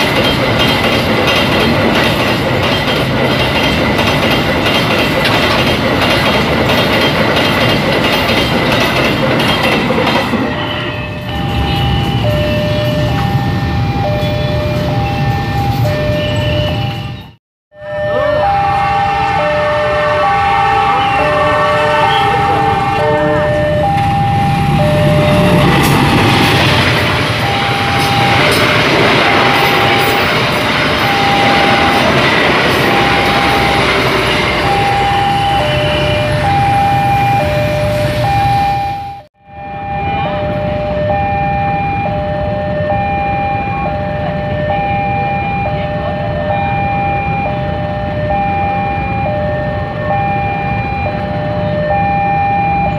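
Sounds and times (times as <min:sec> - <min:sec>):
level crossing two-tone alarm: 0:00.0 - 0:52.9
train passing on rails: 0:00.0 - 0:52.9.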